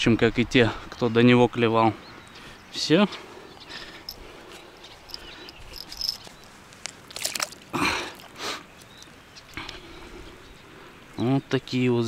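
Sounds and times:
faint insect chirping: 3.3 - 6.7
short water splashes: 6.9 - 8.4.

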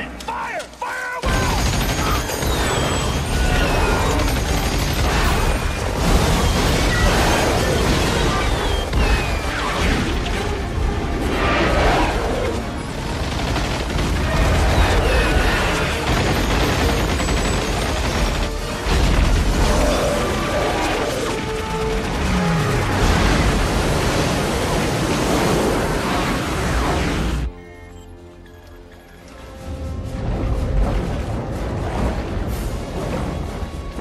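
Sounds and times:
dramatic music: 0.0 - 34.0
explosions: 1.2 - 12.2, 13.0 - 27.5.

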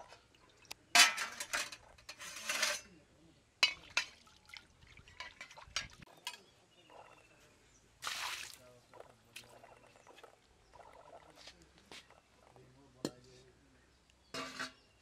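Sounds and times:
water splashing into metal pan: 3.6 - 6.0, 8.0 - 8.6.

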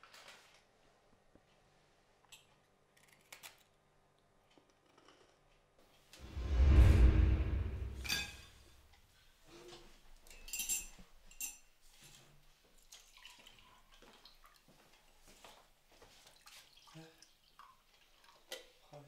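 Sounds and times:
low sound: 6.2 - 8.6
cups and dishes clinking: 10.3 - 11.7.

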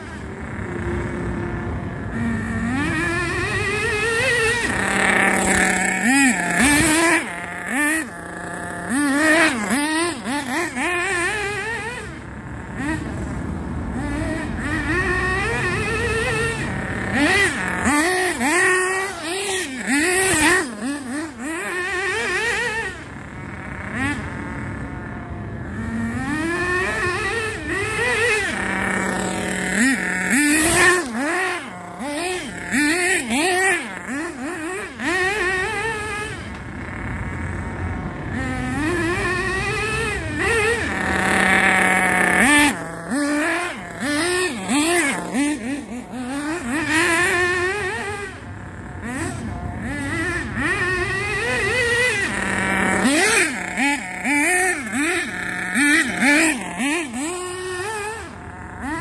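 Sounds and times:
rc buggy engine revving: 0.0 - 59.0.

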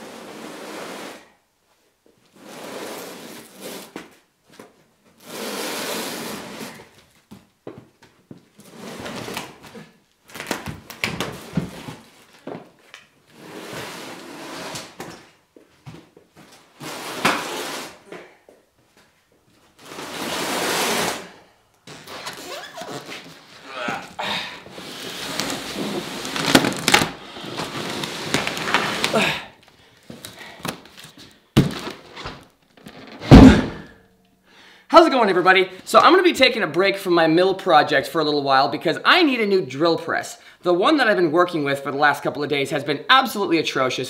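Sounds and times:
cardboard box scraping on concrete: 0.0 - 1.3, 2.4 - 4.2, 5.2 - 7.0, 13.3 - 15.1, 16.8 - 18.1, 19.8 - 21.4, 24.7 - 29.2.

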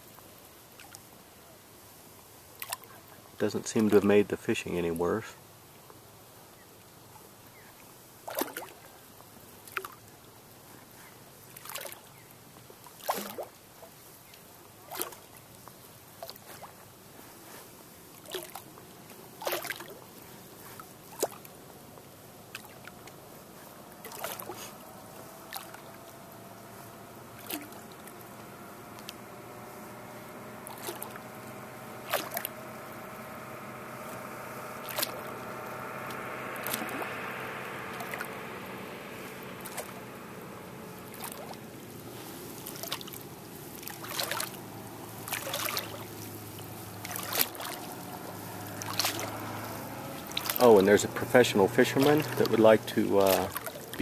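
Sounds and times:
distant engine drone: 0.0 - 12.4, 13.0 - 54.0
water lapping against boat: 0.0 - 54.0
sharp splashes and knocks: 8.2 - 8.8, 11.6 - 12.1, 12.9 - 13.6, 14.8 - 15.4, 18.1 - 18.6, 19.4 - 20.0, 20.8 - 21.5, 23.9 - 54.0.

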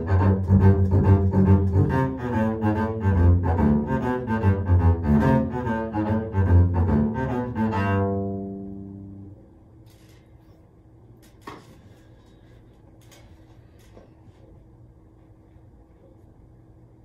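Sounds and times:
bowed double bass: 0.0 - 9.4.

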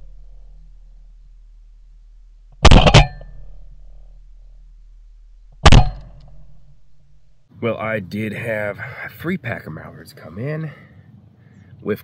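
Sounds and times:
shotgun shots: 2.6 - 3.6, 5.6 - 6.7.

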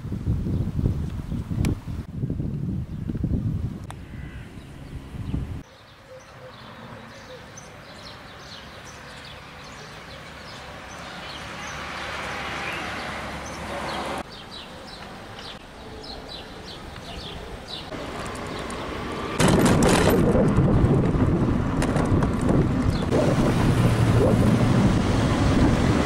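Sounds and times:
wind buffeting microphone: 0.0 - 5.6, 17.1 - 26.0.

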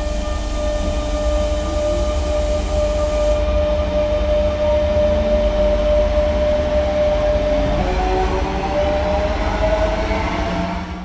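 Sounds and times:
high hiss: 0.0 - 3.5
tram electric hum: 0.0 - 11.0.

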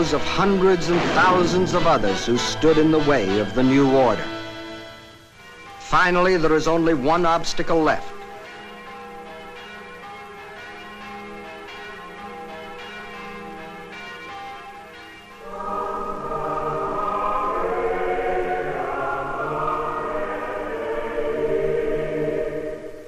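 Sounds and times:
choir singing: 0.0 - 4.9, 15.4 - 23.0
church bells ringing: 0.0 - 22.5.

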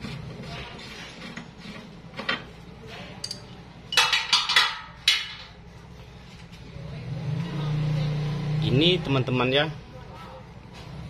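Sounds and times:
metal clinks and knocks: 3.2 - 5.6.

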